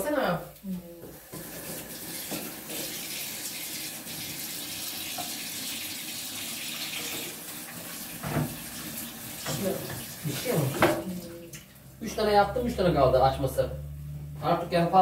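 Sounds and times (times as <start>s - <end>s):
tap running into sink: 1.0s - 3.2s, 5.0s - 5.8s, 6.6s - 11.7s.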